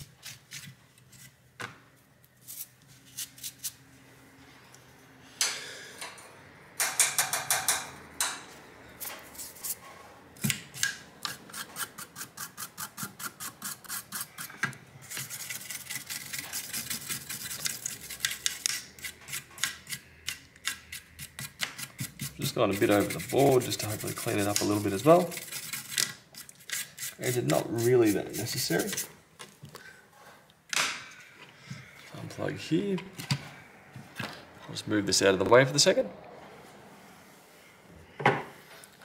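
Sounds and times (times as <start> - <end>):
toothbrush scrubbing circuit board: 11.5 - 20.0, 20.6 - 29.1.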